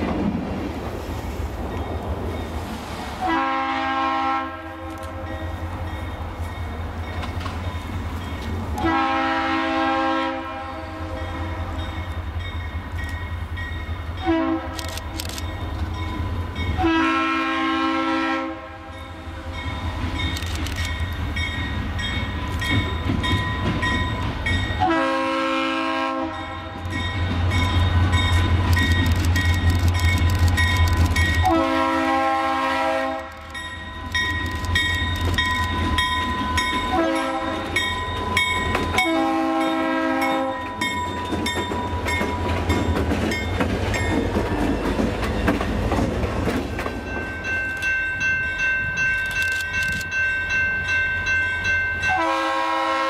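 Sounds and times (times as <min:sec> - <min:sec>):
locomotive air horn: 0:03.2 - 0:05.8, 0:08.8 - 0:12.1, 0:14.2 - 0:14.8, 0:16.8 - 0:19.7, 0:24.8 - 0:27.0, 0:31.4 - 0:33.6, 0:36.9 - 0:37.9, 0:38.9 - 0:40.8, 0:52.1 - 0:53.0.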